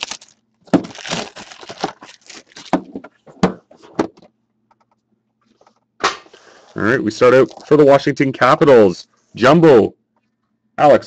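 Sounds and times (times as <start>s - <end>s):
metal tin unwrapped and opened: 0.0s - 2.8s.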